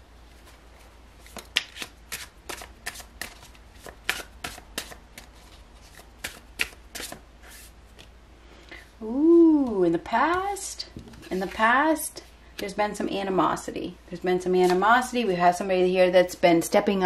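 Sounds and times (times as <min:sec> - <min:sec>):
cards being shuffled: 0:00.3 - 0:08.1.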